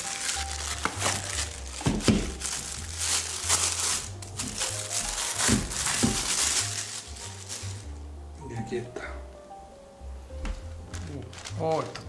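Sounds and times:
plastic bag crinkling: 0:00.0 - 0:07.9, 0:11.0 - 0:12.0.

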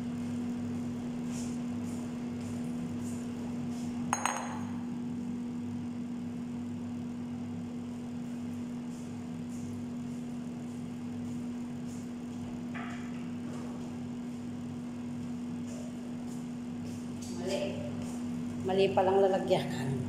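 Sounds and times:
air fryer humming: 0:00.0 - 0:20.0
glass bowl clinking on stone: 0:04.1 - 0:04.8.

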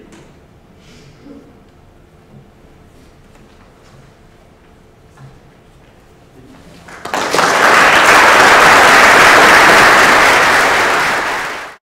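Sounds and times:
audience applauding: 0:06.8 - 0:11.8.

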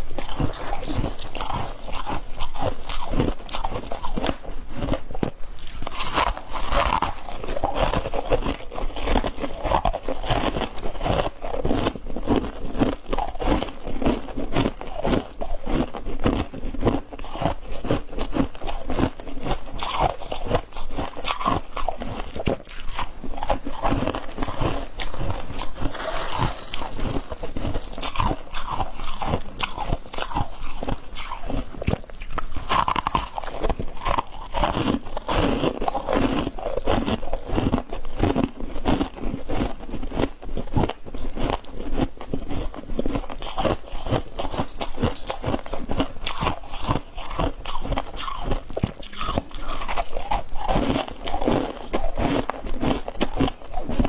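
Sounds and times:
crunching frost chunks: 0:05.6 - 0:54.0.

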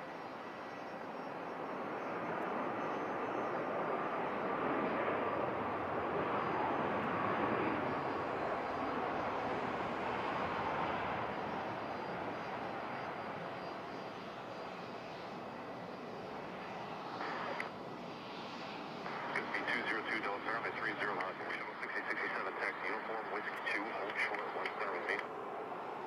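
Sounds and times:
jet engine rushing: 0:06.4 - 0:26.0.

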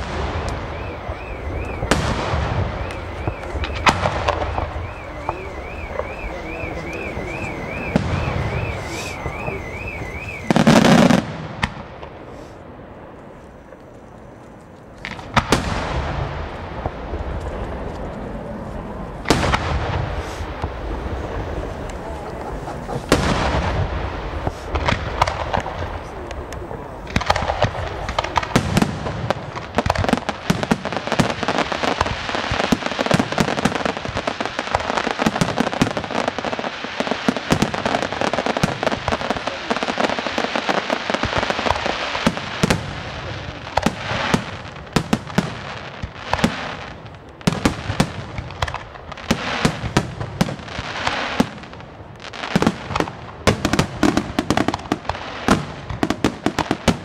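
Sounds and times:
firework shells bursting: 0:00.0 - 0:12.5
firework crackling: 0:00.0 - 0:57.0.

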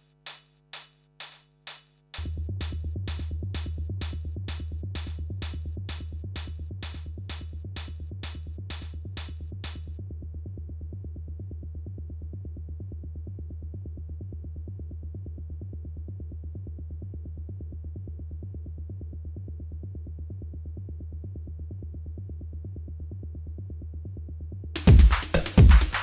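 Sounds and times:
synthesizer bassline pulsing: 0:24.8 - 0:26.0.

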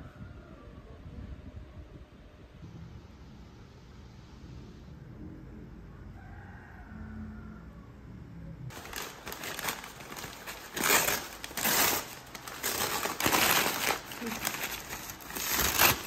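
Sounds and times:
low room hum: 0:00.0 - 0:16.0
paper bags crinkling: 0:08.7 - 0:16.0.

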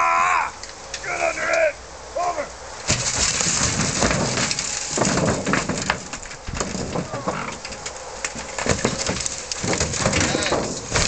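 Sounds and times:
knocks and scrapes of steel car body: 0:02.8 - 0:11.0.

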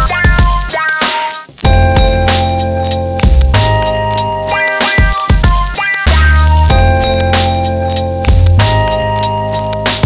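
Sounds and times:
music with deep bass and beat: 0:00.0 - 0:10.0.

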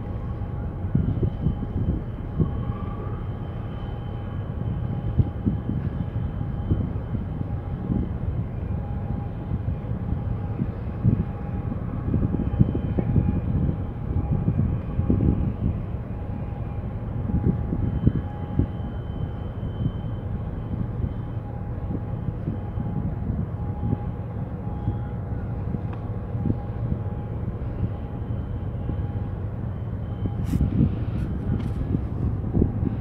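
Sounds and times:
faint steady whine: 0:00.0 - 0:33.0
wind buffeting microphone: 0:00.0 - 0:33.0.

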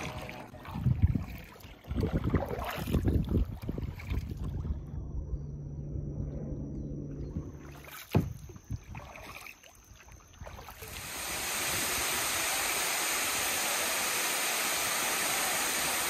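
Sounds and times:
light water splashes: 0:00.0 - 0:04.8, 0:07.5 - 0:16.0
waterfall rushing: 0:10.9 - 0:16.0.

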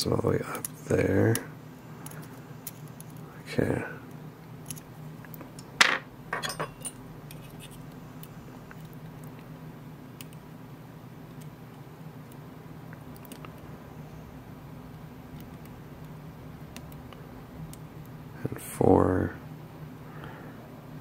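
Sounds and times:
low steady hum: 0:00.0 - 0:21.0
metal tools clinking: 0:05.8 - 0:07.0.

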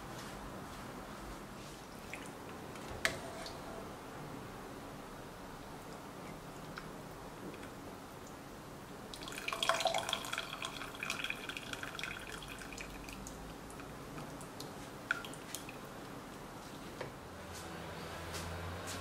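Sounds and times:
broth trickling into a pot: 0:09.1 - 0:15.9.

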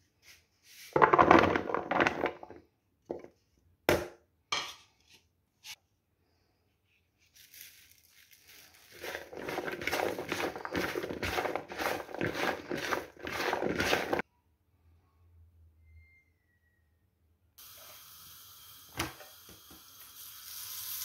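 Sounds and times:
pieces knocking together: 0:01.0 - 0:03.2, 0:07.4 - 0:14.2
slices tossed in bowl rustling: 0:07.2 - 0:14.2
root slices clattering into bowl: 0:08.9 - 0:14.2.

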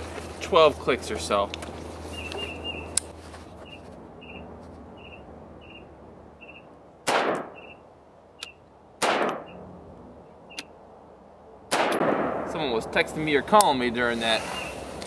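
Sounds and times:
gunshots with echo: 0:07.0 - 0:07.7, 0:09.0 - 0:09.6, 0:11.7 - 0:12.6.

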